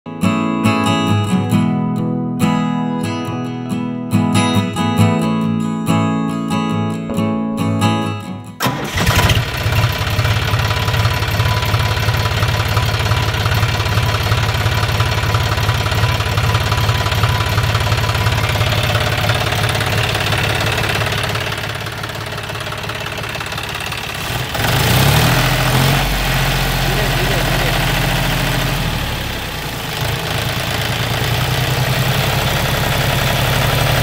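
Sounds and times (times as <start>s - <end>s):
diesel tractor engine idling: 8.6s - 34.0s.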